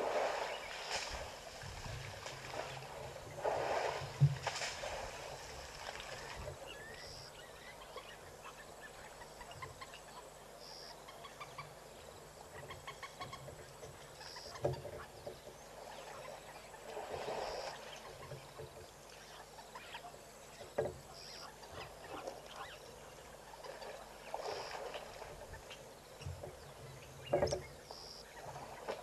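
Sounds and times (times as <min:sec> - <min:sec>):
elephant splashing mud: 0:00.0 - 0:06.4, 0:16.8 - 0:18.0, 0:23.6 - 0:25.4.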